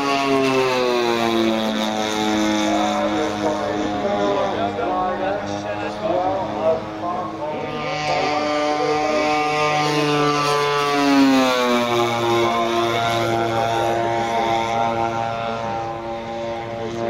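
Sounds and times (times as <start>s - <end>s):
model plane engines whining: 0.0s - 17.0s.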